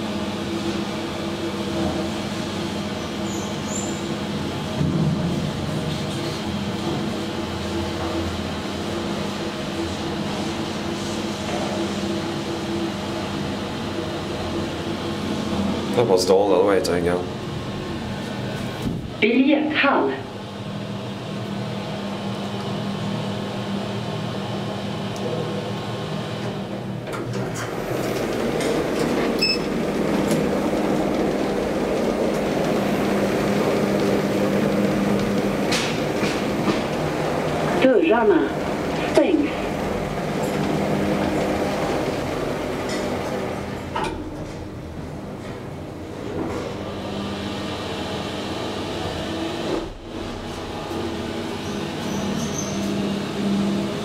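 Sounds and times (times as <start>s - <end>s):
elevator machine hum: 0.0s - 54.0s
elevator ride noise: 0.0s - 54.0s
steady rumble: 25.8s - 47.8s
elevator button beep: 29.4s - 29.8s.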